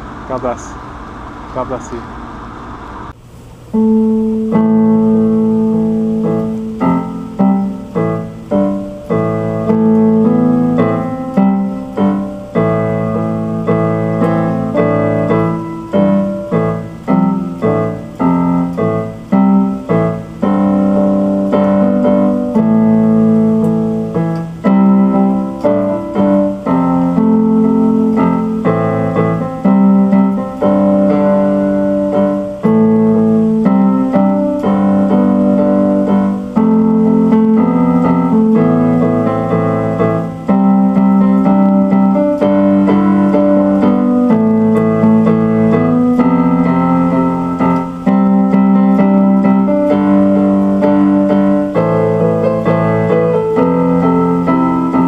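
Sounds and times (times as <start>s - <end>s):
keyboard piano music: 3.6s - 55.0s.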